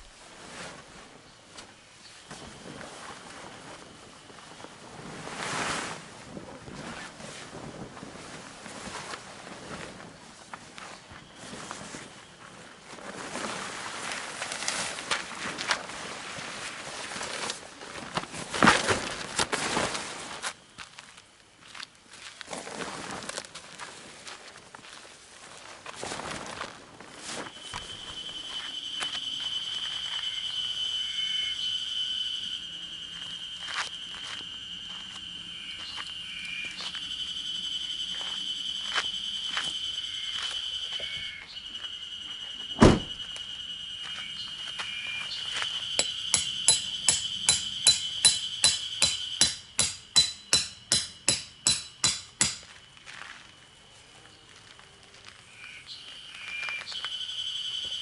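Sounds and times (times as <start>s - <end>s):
high-pitched insect drone: 27.4s - 58.0s
hammer striking tent pegs: 46.0s - 52.7s.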